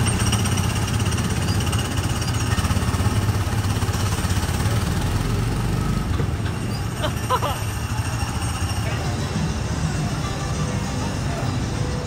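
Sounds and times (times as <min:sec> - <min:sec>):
small gasoline engine puttering: 0:00.0 - 0:08.9.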